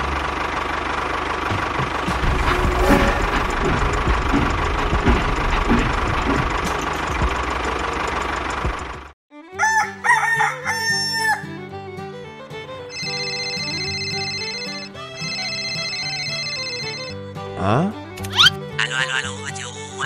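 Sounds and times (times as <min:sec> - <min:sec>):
tractor engine running: 0:00.0 - 0:09.2
rooster crowing: 0:09.6 - 0:11.6.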